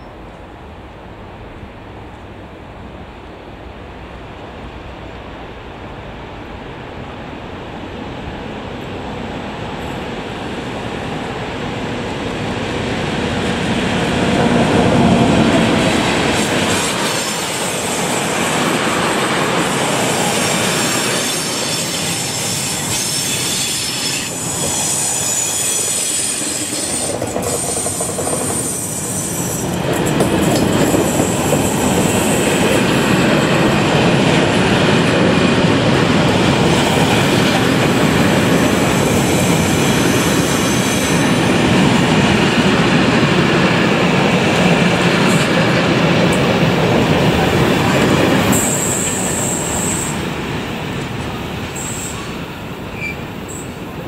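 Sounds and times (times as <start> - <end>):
electric locomotive approaching: 0.0 - 54.0
high-pitched wheel squeal: 20.7 - 29.8.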